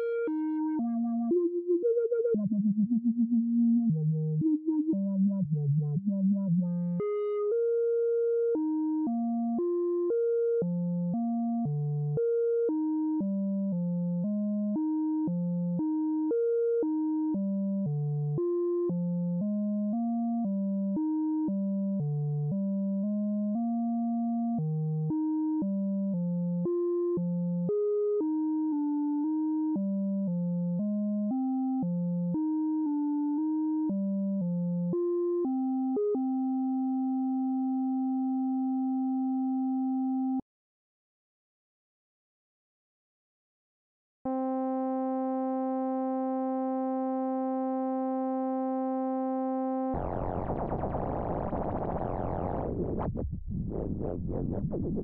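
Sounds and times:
synthesizer sequenced notes: 0.0 - 2.4, 44.3 - 53.0
stuttering synthesizer tones: 49.9 - 55.0.

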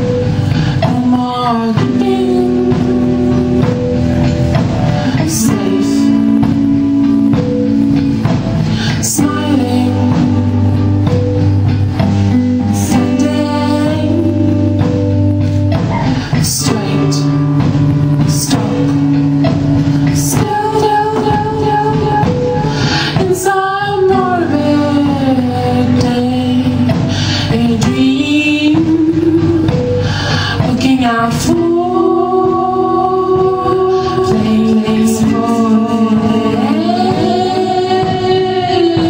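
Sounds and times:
person singing over held notes: 20.1 - 39.0.

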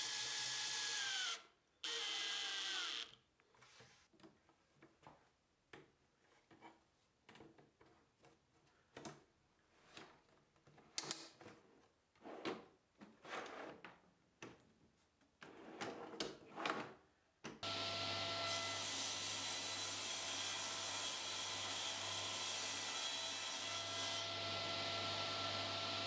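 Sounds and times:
table saw running: 17.6 - 26.0.

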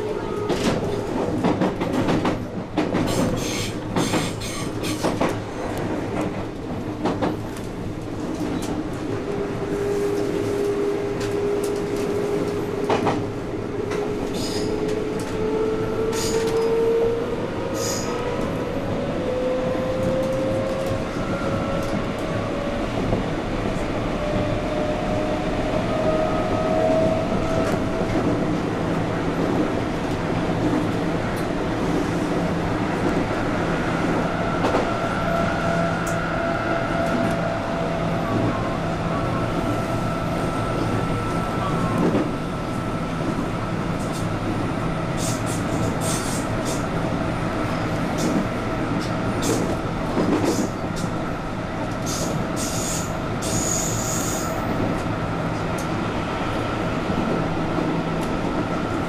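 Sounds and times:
train wheels clattering over rail joints: 0.5 - 5.4.

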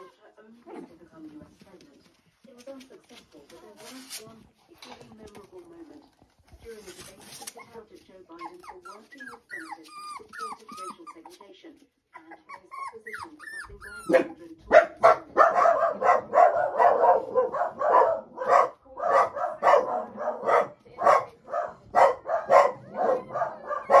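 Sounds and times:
puppies yapping: 8.4 - 11.3, 12.4 - 21.2, 22.0 - 24.0
puppies whimpering: 8.4 - 11.4, 12.2 - 14.4.

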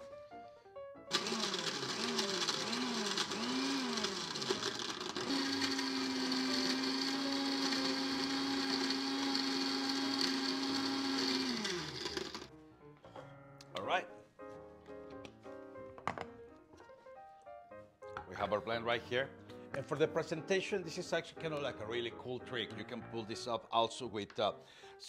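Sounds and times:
blender crushing ice: 1.1 - 12.5.

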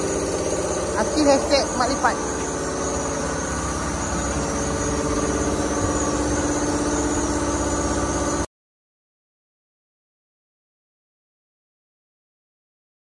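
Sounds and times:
machine motor pulsing hum: 0.0 - 8.5.

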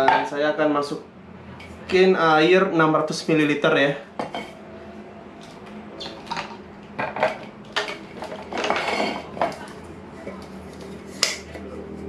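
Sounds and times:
scraping rattle: 7.8 - 11.4.

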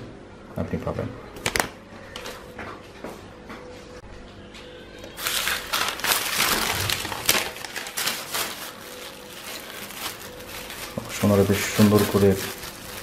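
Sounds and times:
paper wrapping crumpling: 5.2 - 13.0
plastic film crinkling: 5.2 - 13.0.

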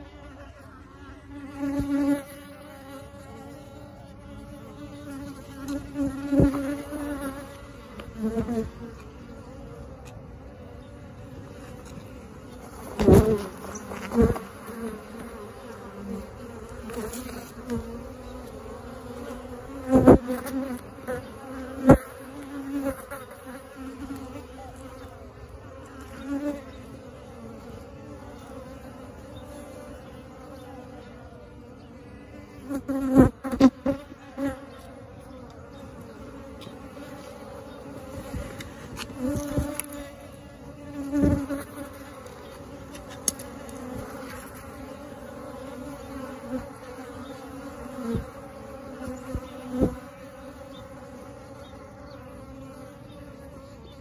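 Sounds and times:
bees buzzing: 0.0 - 54.0
close bee buzzes and knocks: 1.2 - 31.1, 32.6 - 54.0.

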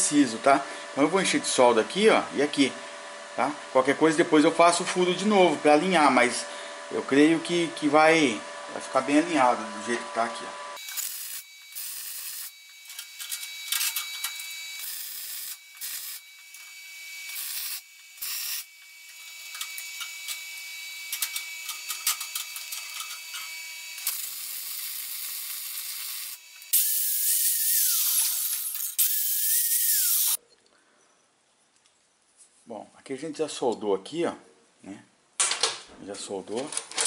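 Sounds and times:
angle grinder grinding steel: 9.2 - 30.4
arc welding crackling and hissing: 10.8 - 30.4.

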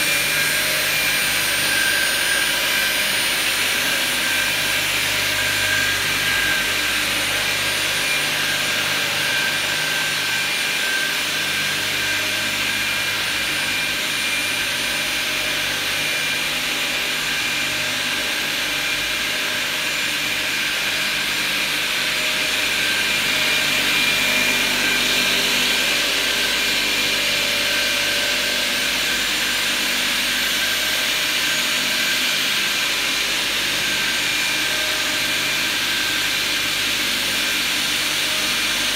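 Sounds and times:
crosscut saw whirring: 0.0 - 38.9.

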